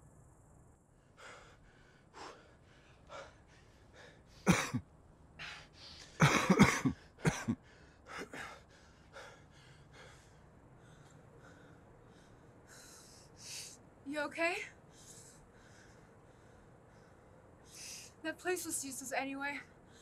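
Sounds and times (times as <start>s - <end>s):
heavy breathing: 1.1s - 4.5s, 6.9s - 13.8s, 14.8s - 18.2s
person coughing: 4.5s - 4.8s, 6.2s - 7.6s.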